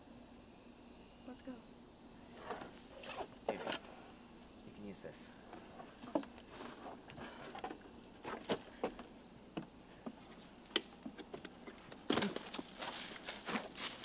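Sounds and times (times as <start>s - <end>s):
crickets chirring: 0.0s - 14.0s
footsteps on wooden ladder: 5.5s - 10.4s, 11.0s - 14.0s.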